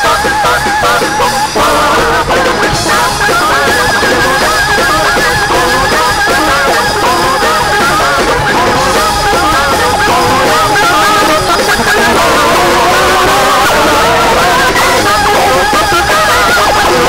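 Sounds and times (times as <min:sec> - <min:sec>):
church band playing gospel music: 0:00.0 - 0:17.0.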